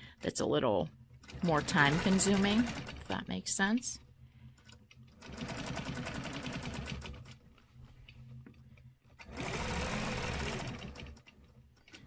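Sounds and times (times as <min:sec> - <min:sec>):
quilting machine stitching: 0:01.2 - 0:03.2, 0:04.6 - 0:07.4, 0:09.2 - 0:11.5.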